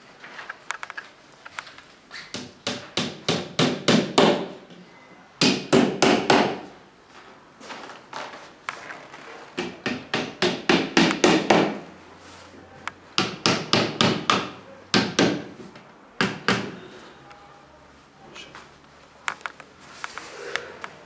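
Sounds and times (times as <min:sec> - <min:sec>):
hammer tapping wood: 0:09.6 - 0:11.8.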